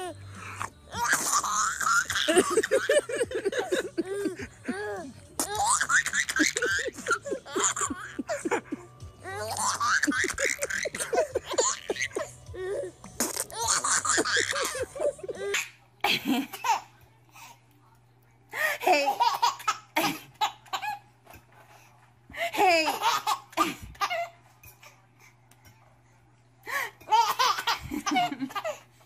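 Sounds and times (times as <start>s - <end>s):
baby laughing: 0.9s - 16.9s, 22.6s - 24.4s, 27.1s - 28.8s.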